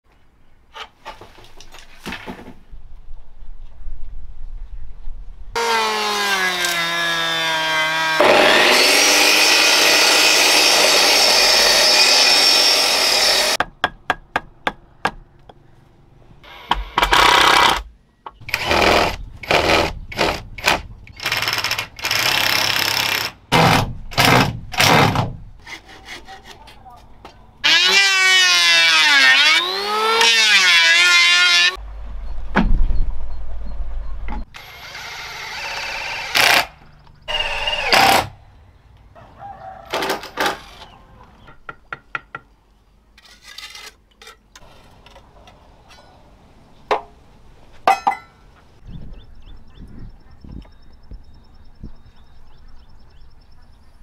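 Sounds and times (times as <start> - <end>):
band sawmill cutting log: 5.6 - 13.6, 27.6 - 31.8, 34.6 - 36.7.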